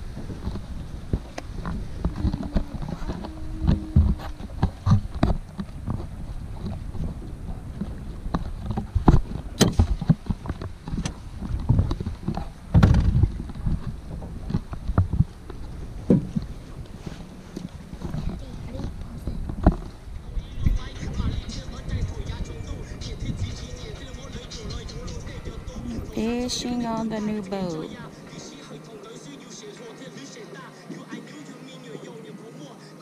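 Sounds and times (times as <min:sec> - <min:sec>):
footsteps on aluminium boat hull: 0:00.0 - 0:28.0.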